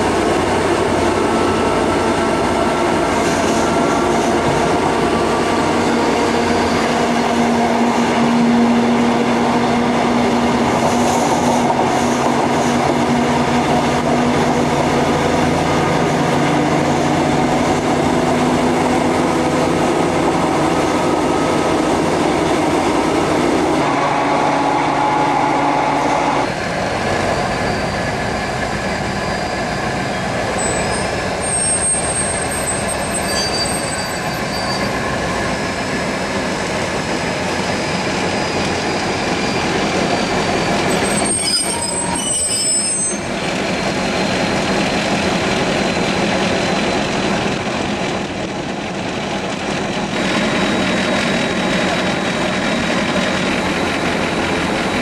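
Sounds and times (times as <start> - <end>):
diesel locomotive running: 0.0 - 55.0
train drone from aboard: 0.0 - 55.0
wheels squealing on rail: 2.9 - 7.2, 23.8 - 45.1.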